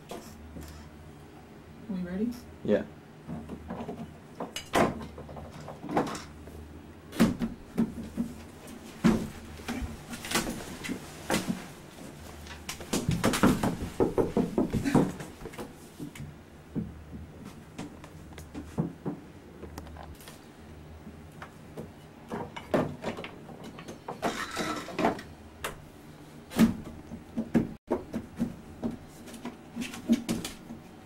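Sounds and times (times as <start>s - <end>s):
rustling: 8.0s - 16.2s.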